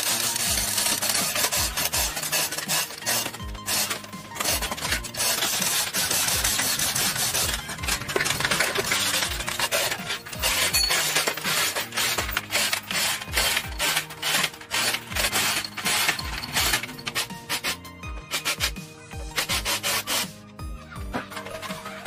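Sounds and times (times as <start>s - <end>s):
rough scraping and rubbing: 0.0s - 18.8s, 19.4s - 20.4s.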